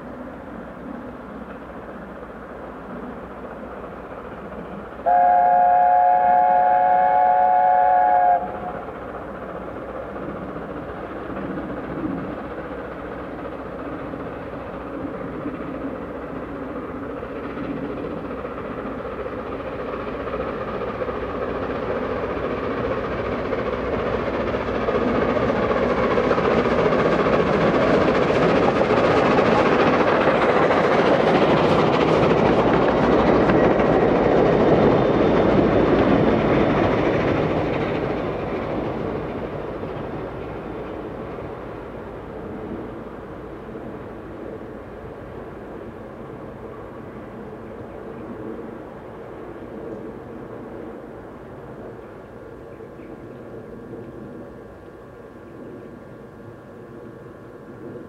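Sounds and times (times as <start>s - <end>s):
steam locomotive passing: 0.0s - 58.0s.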